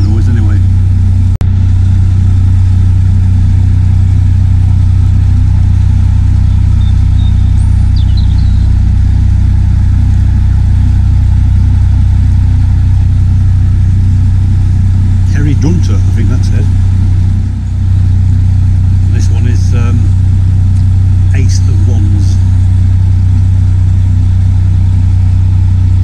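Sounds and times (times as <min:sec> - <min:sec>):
diesel engine drone: 0:00.0 - 0:26.0.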